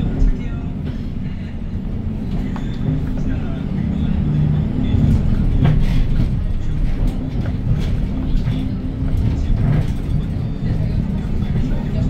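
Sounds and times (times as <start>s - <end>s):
bus engine drone: 0.0s - 12.0s
bus body knocks and rattles: 4.7s - 12.0s.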